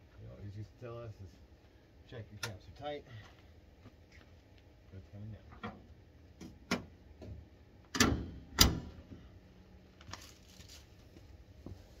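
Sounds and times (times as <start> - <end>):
hood latch click: 7.9 - 8.8.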